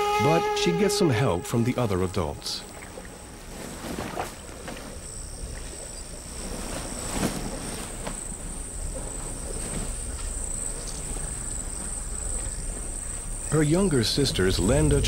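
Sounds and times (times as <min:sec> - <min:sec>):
insects chirring: 0:00.6 - 0:15.0
low steady rumble: 0:08.5 - 0:15.0.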